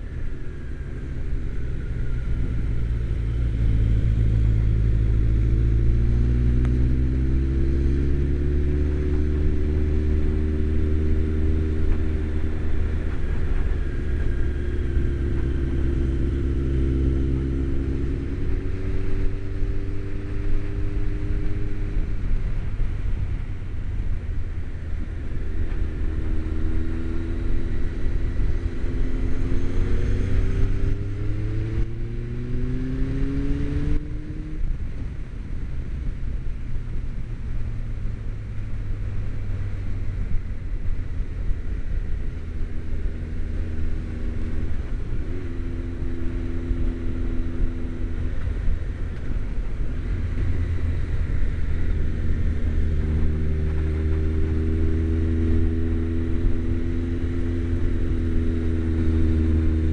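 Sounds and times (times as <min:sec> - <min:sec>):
motorcycle engine accelerating: 0:00.0 - 0:59.9
wind and road rumble: 0:00.0 - 0:59.9.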